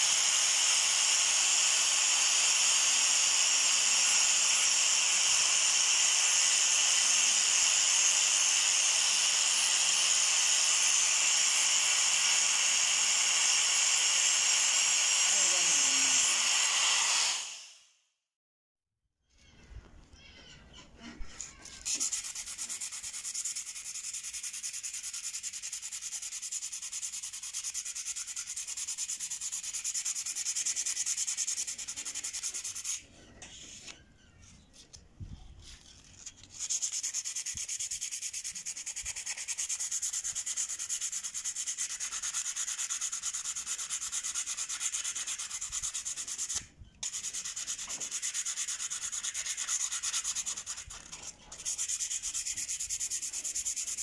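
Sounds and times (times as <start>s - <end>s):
sandpaper scraping steel blade: 2.2s - 17.6s, 21.0s - 34.0s, 35.6s - 54.0s.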